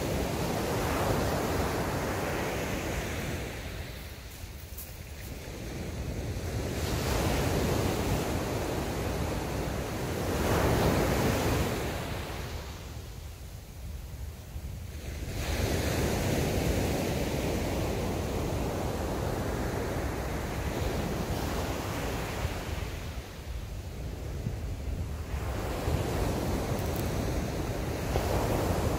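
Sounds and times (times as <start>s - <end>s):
wind buffeting microphone: 13.9s - 28.9s.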